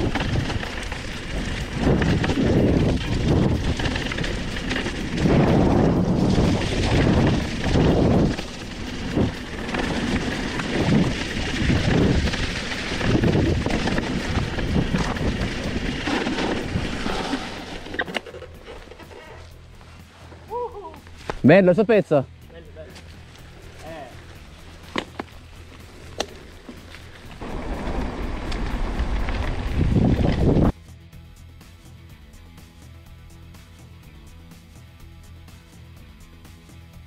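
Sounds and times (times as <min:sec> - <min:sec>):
wind on microphone: 0:00.0 - 0:17.6, 0:27.4 - 0:30.8
bike rattling over bumps: 0:00.0 - 0:20.4, 0:22.7 - 0:30.8
tyres crackling over dry leaves: 0:00.0 - 0:30.7.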